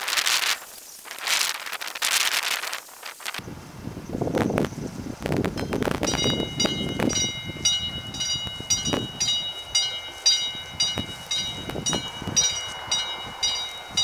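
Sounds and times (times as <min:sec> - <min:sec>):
level crossing warning bell: 0:05.6 - 0:14.0.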